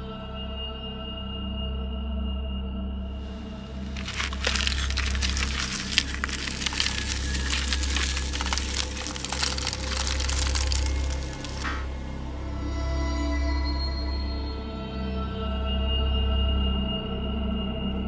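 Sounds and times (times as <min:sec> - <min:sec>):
dense irregular crackling: 0:03.7 - 0:11.9.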